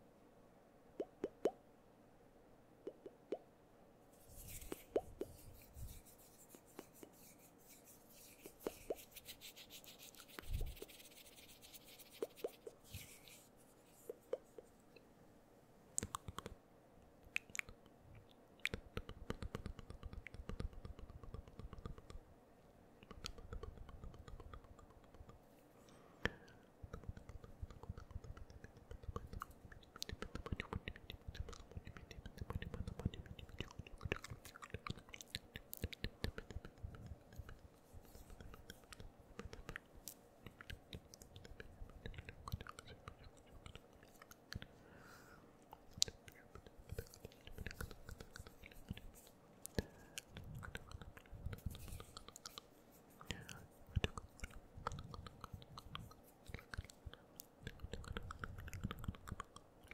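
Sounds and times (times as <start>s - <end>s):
mouth clicks and pops: 1.0s - 1.6s, 2.8s - 3.5s, 4.5s - 6.0s, 16.0s - 16.6s, 17.3s - 22.2s, 23.0s - 25.5s, 26.2s - 44.7s, 45.7s - 59.9s
breathy whispering: 40.4s - 59.9s.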